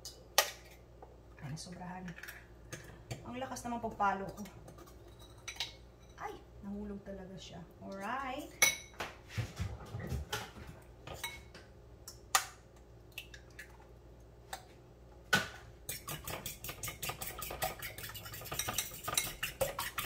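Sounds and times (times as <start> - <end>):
eggs beaten in a bowl: 15.8 - 20.0.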